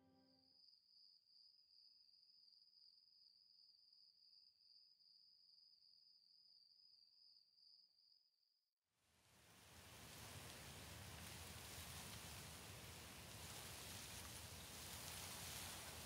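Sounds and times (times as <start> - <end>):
hiss of noise: 9.2 - 16.0.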